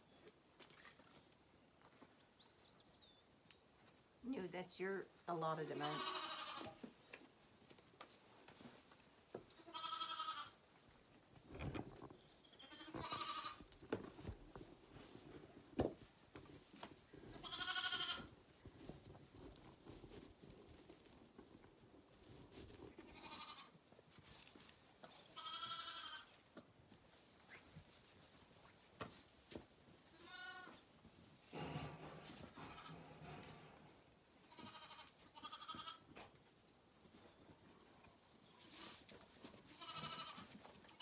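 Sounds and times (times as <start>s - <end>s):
lamb bleating: 5.8s - 6.8s, 9.6s - 10.6s, 12.6s - 13.6s, 17.4s - 18.3s, 23.1s - 23.7s, 25.4s - 26.3s, 30.1s - 30.8s, 34.5s - 36.0s, 39.7s - 41.0s.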